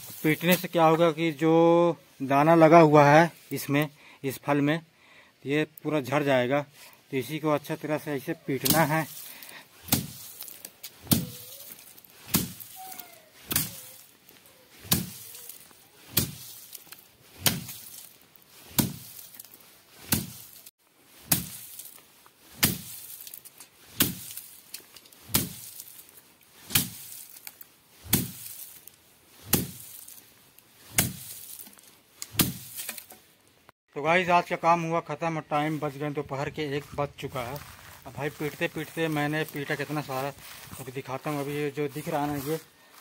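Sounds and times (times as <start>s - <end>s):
bamboo stick whacking dry stalks: 0.0s - 1.4s, 7.2s - 33.4s, 37.6s - 43.0s.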